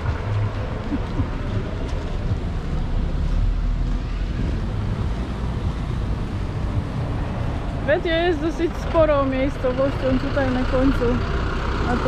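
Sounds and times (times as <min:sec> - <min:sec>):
wind rumble on microphone: 0:00.0 - 0:08.8
road traffic: 0:00.0 - 0:12.0.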